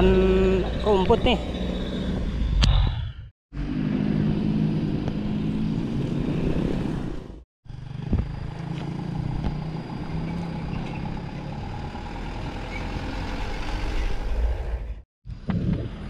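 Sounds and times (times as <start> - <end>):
motorcycles passing: 3.6 - 14.9
diesel truck driving by: 3.6 - 15.0.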